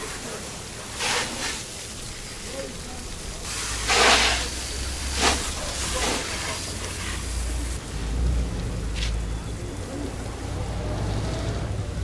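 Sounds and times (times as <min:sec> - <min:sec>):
hose spraying water: 0:00.0 - 0:07.8.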